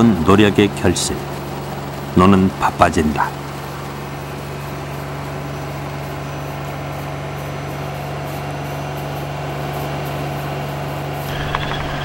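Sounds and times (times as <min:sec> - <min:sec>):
combine harvester engine hum: 0:08.9 - 0:12.0.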